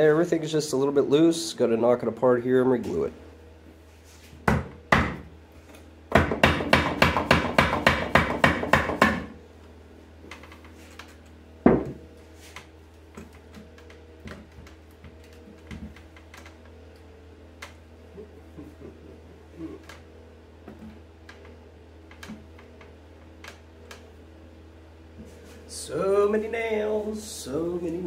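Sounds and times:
hammer knocking on wood: 4.4s - 5.2s, 6.1s - 9.3s, 11.6s - 12.0s.

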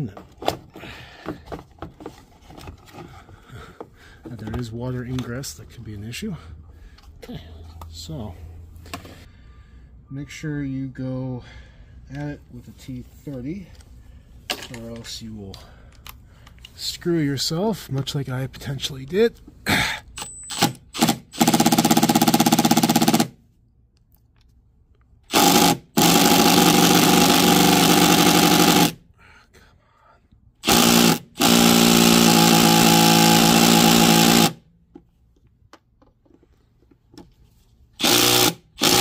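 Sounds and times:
impact driver hammering bolts: 20.2s - 23.3s, 25.3s - 29.0s, 30.6s - 34.6s, 38.0s - 39.0s.

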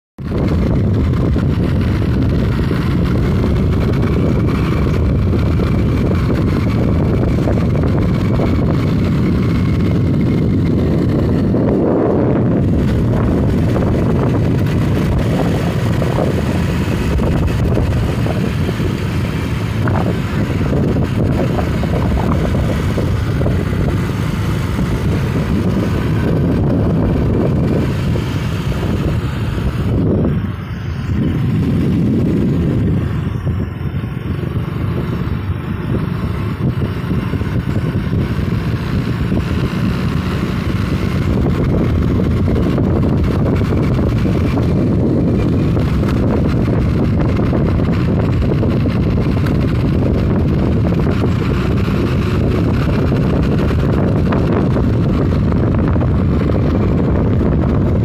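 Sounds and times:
wind and vehicle running noise: 0.2s - 58.0s
wind buffeting microphone: 0.2s - 58.0s.

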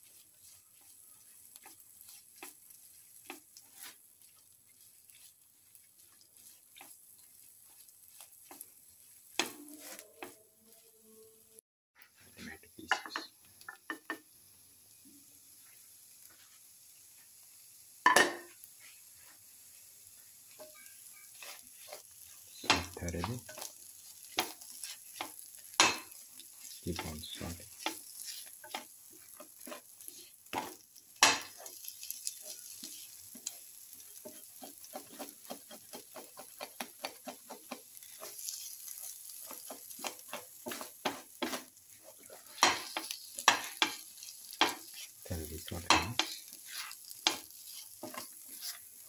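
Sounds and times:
spatula scraping a pan: 0.0s - 11.1s, 15.5s - 49.0s
faint sizzle: 0.0s - 49.0s
spatula knocking on pan: 18.0s - 18.5s.

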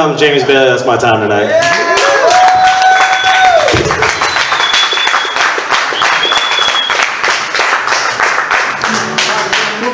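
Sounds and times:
audience applauding: 1.6s - 9.9s
short high whistles: 4.2s - 7.0s.

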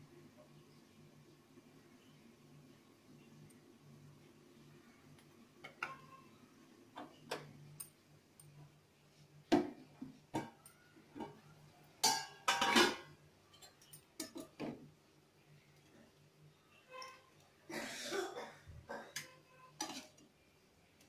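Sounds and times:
cookware and dishes clinking: 5.6s - 6.2s, 9.5s - 14.8s, 19.1s - 20.2s.

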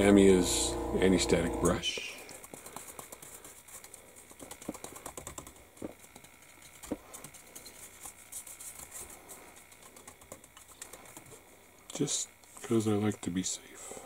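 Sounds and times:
brush bristles scratching plastic: 1.8s - 11.5s.

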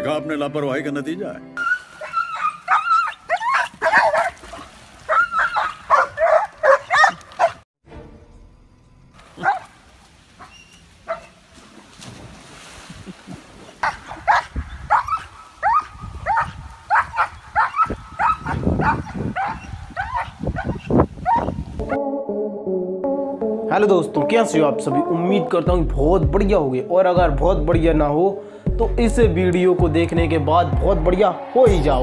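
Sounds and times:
small dog barking: 1.6s - 7.6s, 9.4s - 9.7s, 13.8s - 21.6s.

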